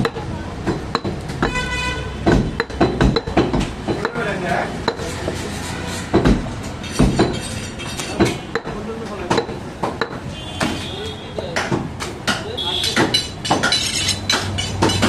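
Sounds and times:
knife chopping on wooden block: 0.0s - 4.3s, 4.9s - 10.8s.

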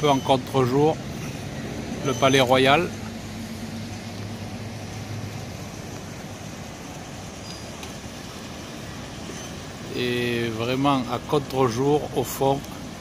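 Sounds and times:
low engine hum: 0.0s - 13.0s
street traffic noise: 0.0s - 13.0s.

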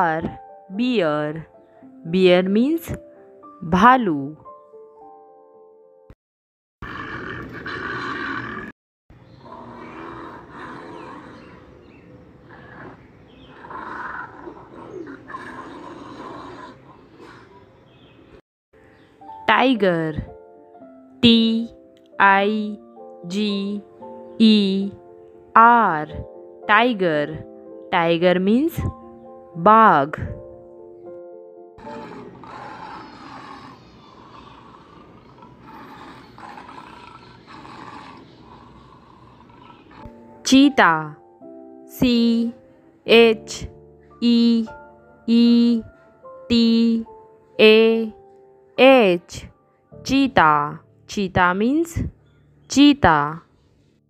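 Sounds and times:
bear growling: 6.8s - 17.9s, 31.8s - 40.2s
birds chirping faintly: 7.9s - 19.8s, 22.7s - 26.2s, 30.8s - 40.8s, 42.1s - 54.0s.

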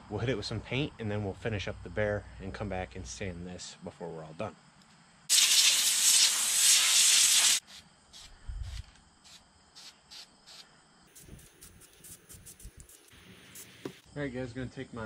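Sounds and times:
compressed air hissing from nozzle: 5.3s - 14.1s.

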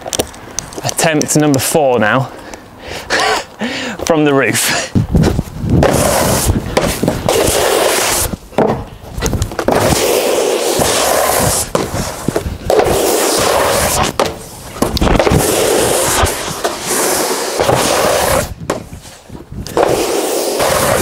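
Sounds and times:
snowboard scraping on matting: 5.2s - 8.4s, 9.6s - 21.0s.

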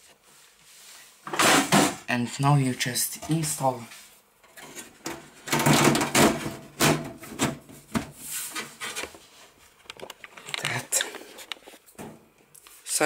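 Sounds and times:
computer case cover scraping: 4.6s - 9.3s.

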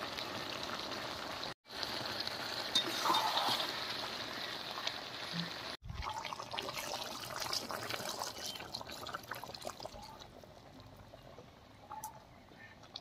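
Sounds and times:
hot gravy splashing and crackling: 0.0s - 11.7s
water poured into pot: 1.8s - 5.2s, 5.8s - 10.3s.

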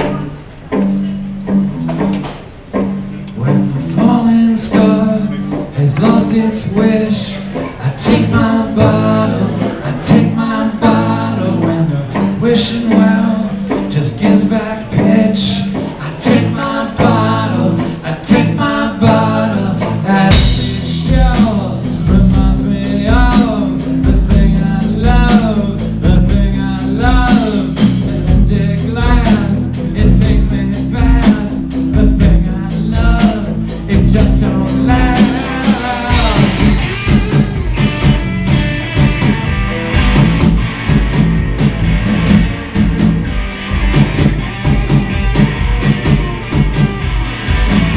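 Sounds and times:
acoustic guitar: 0.0s - 47.9s
drum kit: 0.0s - 47.9s
upright bass: 0.0s - 47.9s
person singing: 3.3s - 39.6s.

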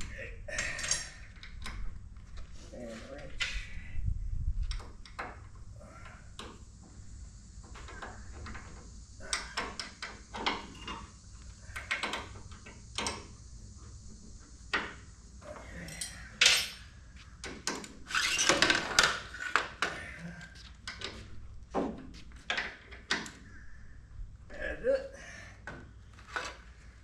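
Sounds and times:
hand tools clinking on metal: 15.8s - 16.8s.

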